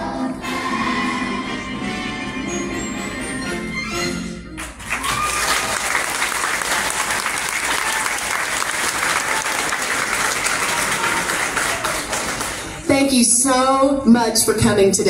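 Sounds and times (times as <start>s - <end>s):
large audience clapping: 4.6s - 12.9s
person whooping: 4.9s - 5.8s.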